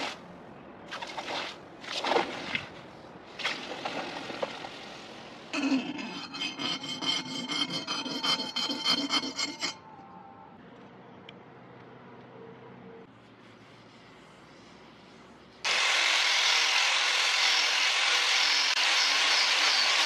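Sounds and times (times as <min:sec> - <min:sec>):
metal rod scraping steel blade: 0:05.6 - 0:09.9.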